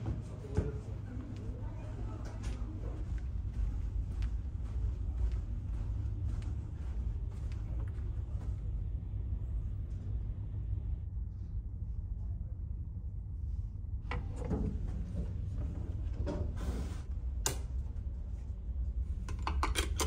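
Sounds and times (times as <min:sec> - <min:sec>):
ferry machinery hum: 0:00.0 - 0:20.0.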